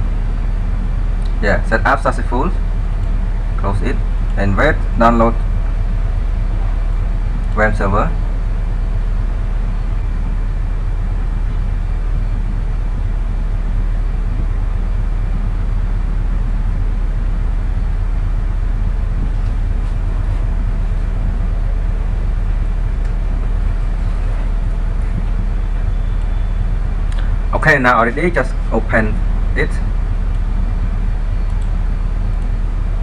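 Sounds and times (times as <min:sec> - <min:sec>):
low rumble with hiss: 0:00.0 - 0:33.0
faint clicks: 0:31.4 - 0:31.8.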